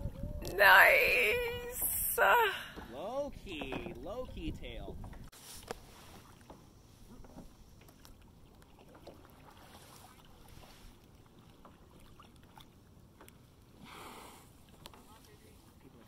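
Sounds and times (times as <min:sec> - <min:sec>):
water lapping against a hull: 0:00.0 - 0:16.0
small ticks and splashes: 0:07.7 - 0:13.7.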